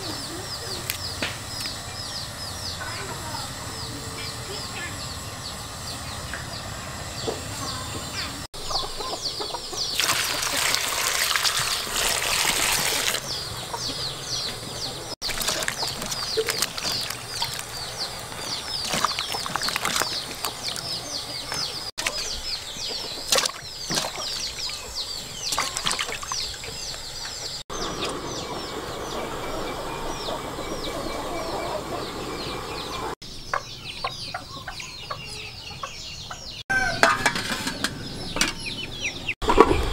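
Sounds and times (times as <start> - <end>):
chickens clucking: 0.0 - 39.9
water splashing in metal bowl: 9.9 - 13.2, 15.2 - 21.0, 23.2 - 24.8, 25.4 - 26.7.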